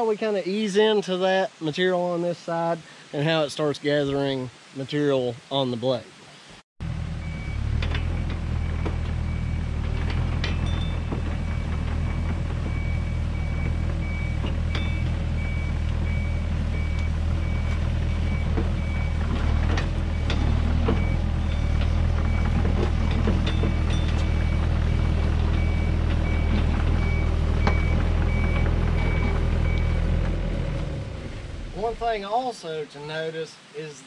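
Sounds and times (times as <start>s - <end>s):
diesel engine idling: 6.8s - 32.2s
metal clanks: 7.8s - 12.8s, 18.5s - 24.6s.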